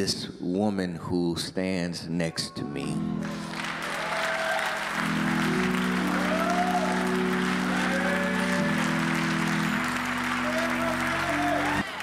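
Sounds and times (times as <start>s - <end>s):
congregation applauding: 3.2s - 12.0s
sustained keyboard chords: 4.7s - 12.0s.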